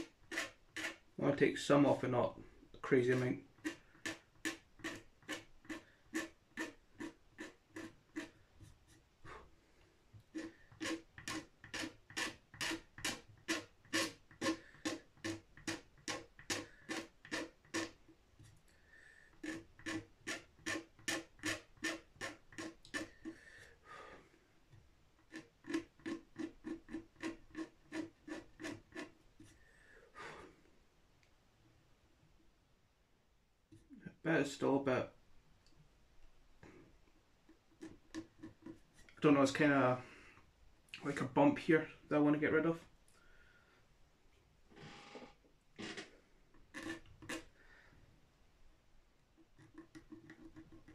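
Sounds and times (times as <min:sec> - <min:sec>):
steel scraper scraping wood finish: 0:00.0 - 0:01.2, 0:02.8 - 0:09.4, 0:10.2 - 0:18.0, 0:19.3 - 0:24.1, 0:25.2 - 0:29.6, 0:46.6 - 0:47.5, 0:49.5 - 0:50.9.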